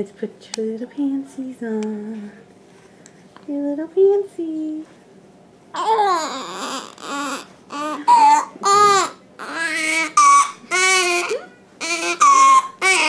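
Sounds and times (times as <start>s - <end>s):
baby crying: 5.8s - 13.0s.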